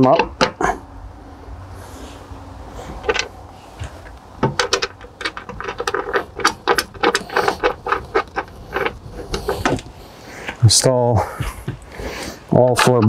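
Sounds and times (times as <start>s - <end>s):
metal bolts clinking and scraping: 2.8s - 13.0s.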